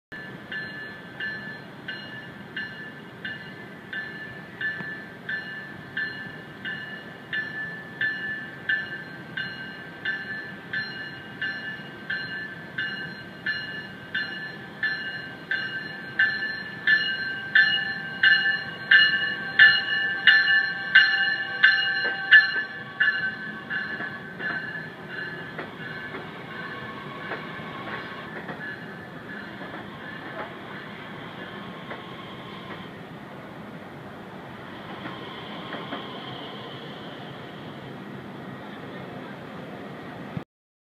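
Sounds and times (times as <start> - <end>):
warning bell ringing: 0.2 - 29.7
train rumbling: 0.2 - 40.4.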